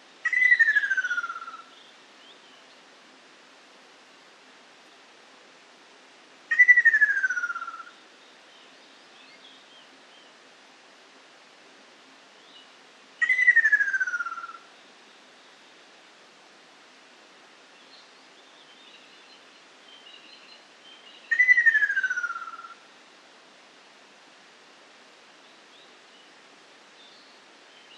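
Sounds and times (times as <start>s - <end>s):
faint bird chirps: 0.2s - 2.9s, 6.5s - 10.4s, 12.3s - 15.7s, 17.7s - 22.8s, 25.4s - 27.9s.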